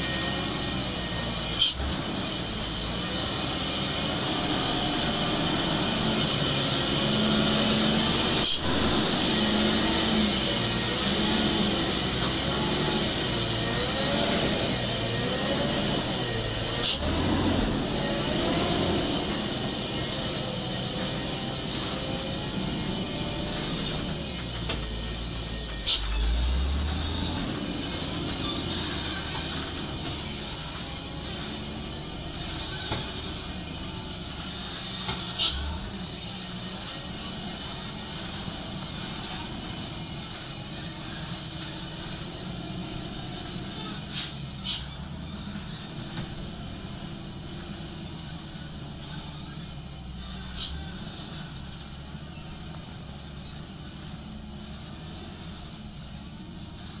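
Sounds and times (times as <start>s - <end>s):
loud air hiss: 0.0s - 45.0s
truck diesel engine droning: 0.0s - 57.0s.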